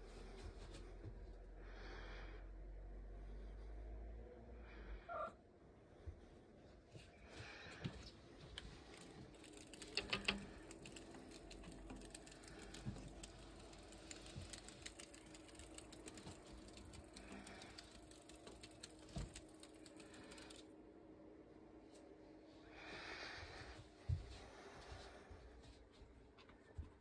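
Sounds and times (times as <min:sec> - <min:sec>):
cat claws clicking on glass: 0:08.9 - 0:20.6.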